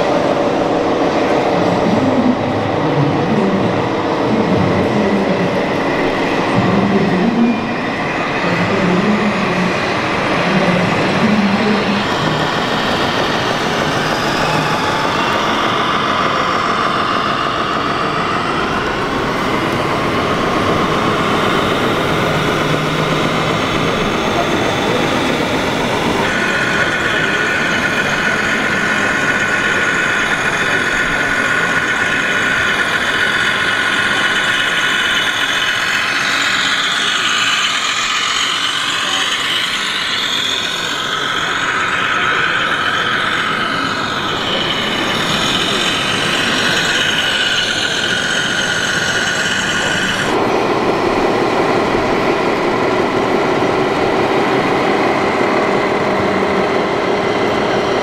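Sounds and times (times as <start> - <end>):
electric motors whining: 0.0 - 58.0
engine-like running sound: 0.0 - 58.0.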